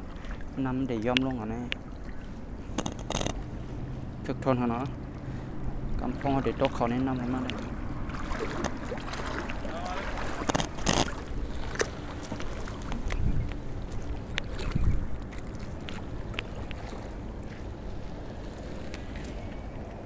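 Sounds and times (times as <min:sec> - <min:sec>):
water lapping on rocks: 0:04.8 - 0:20.0
wind buffeting microphone: 0:05.0 - 0:20.0.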